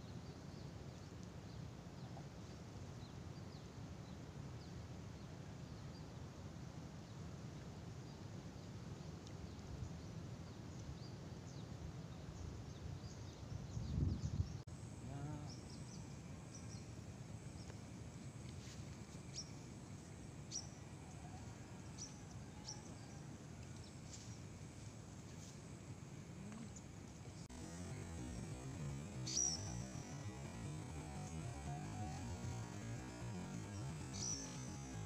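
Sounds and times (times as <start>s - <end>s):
wind rumble on microphone: 12.3s - 14.6s
small birds chirping: 26.4s - 35.0s.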